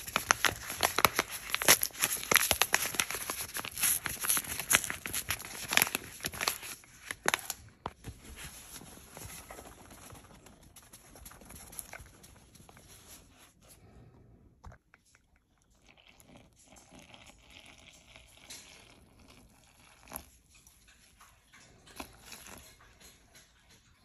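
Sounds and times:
water trickling: 15.6 - 24.0.

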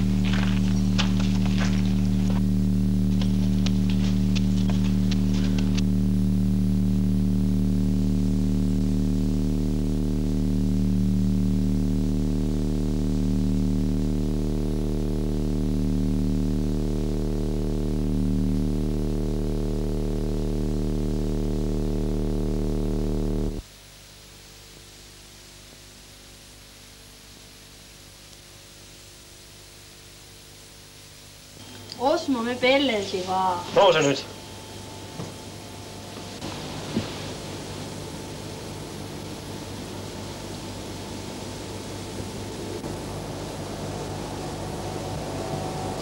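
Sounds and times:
footsteps crunching in snow: 0.0 - 2.5, 3.1 - 5.8
low synthesizer drone: 0.0 - 23.6, 32.3 - 46.0.

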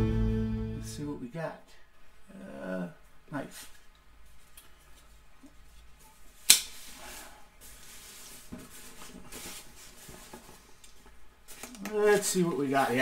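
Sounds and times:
cardboard rustling and scraping: 6.8 - 10.7.

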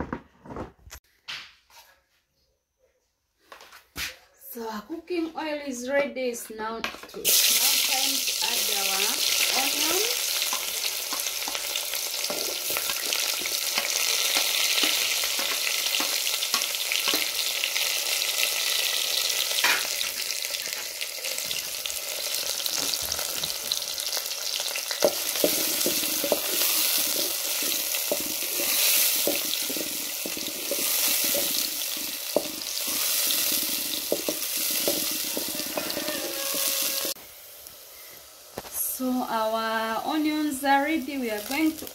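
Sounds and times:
onions sizzling in oil: 7.0 - 41.9
wooden spoon scraping pot: 8.6 - 17.4, 24.9 - 37.2.

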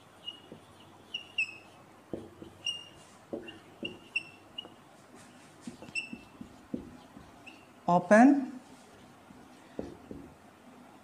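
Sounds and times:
marker squeaking on whiteboard: 0.0 - 7.8, 8.6 - 10.4
marker knocking against board: 0.4 - 4.8, 5.6 - 7.6, 9.3 - 10.4.

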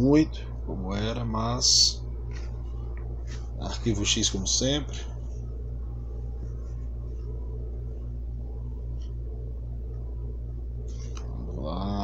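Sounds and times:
low hum with faint pulsing: 0.0 - 12.0.

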